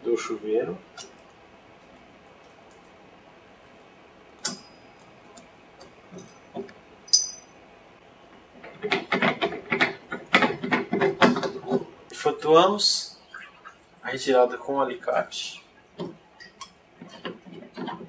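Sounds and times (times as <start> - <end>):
sharp metal clicks with ring: 7.1 - 7.6.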